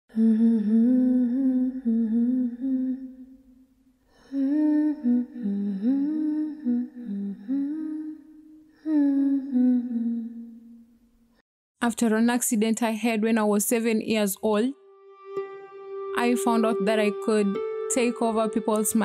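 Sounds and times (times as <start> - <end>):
person humming a melody: 0.1 - 3.5, 4.2 - 10.8, 15.4 - 19.0.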